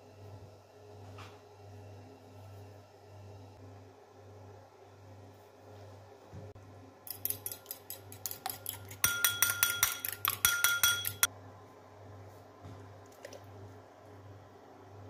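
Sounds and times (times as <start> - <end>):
fork clinking against bowl: 7.1 - 11.3.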